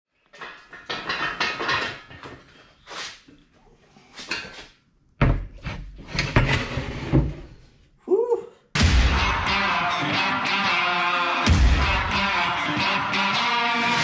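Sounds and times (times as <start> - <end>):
engine block scraping and clattering: 5.5 - 7.7.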